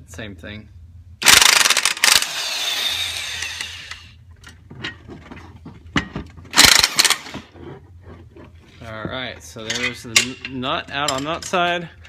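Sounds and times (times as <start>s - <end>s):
impact wrench rattling: 1.2s - 7.6s.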